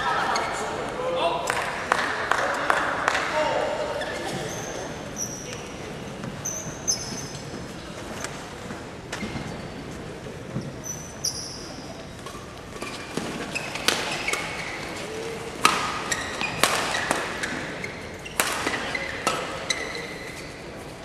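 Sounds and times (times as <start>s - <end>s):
shoes squeaking on court: 3.9s - 21.0s
rackets striking shuttlecock: 12.2s - 14.7s, 15.6s - 19.7s.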